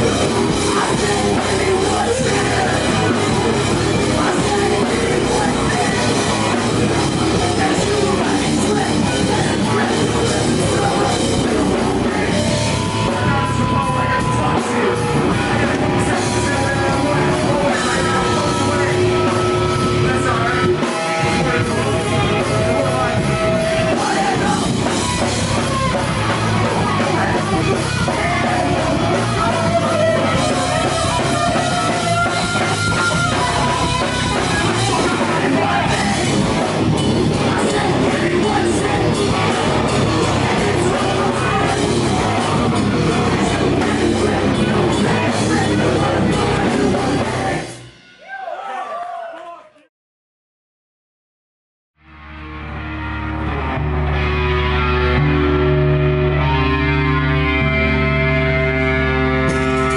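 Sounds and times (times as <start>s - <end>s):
person singing into a microphone: 0.0s - 47.7s
electric guitar: 0.0s - 47.9s, 52.0s - 59.9s
drum kit: 0.0s - 48.9s, 54.1s - 59.9s.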